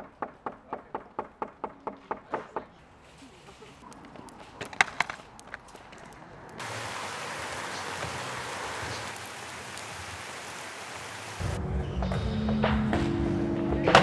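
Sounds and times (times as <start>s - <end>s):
rain hissing: 3.0s - 11.6s.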